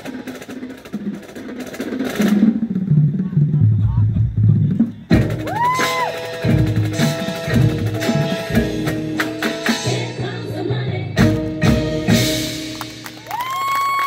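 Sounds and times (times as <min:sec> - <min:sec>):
drum hits: 0:00.0 - 0:10.1.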